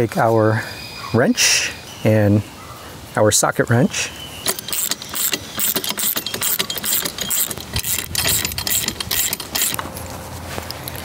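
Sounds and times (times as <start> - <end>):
socket wrench ratcheting: 4.4 - 9.8
metal tools clinking: 4.4 - 10.1.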